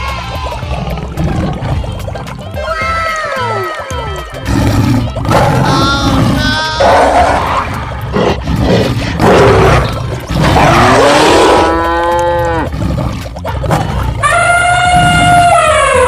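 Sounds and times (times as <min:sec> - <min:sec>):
rough noisy animal sounds: 0:04.4 - 0:16.0.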